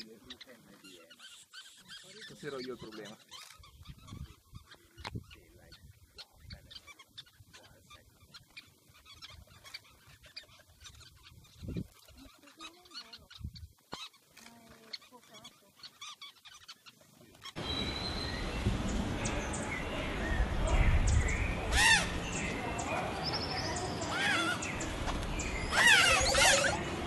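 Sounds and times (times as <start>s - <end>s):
birds chirping: 0.0s - 27.0s
chorus of bird calls: 0.0s - 27.0s
noisy background: 17.6s - 27.0s.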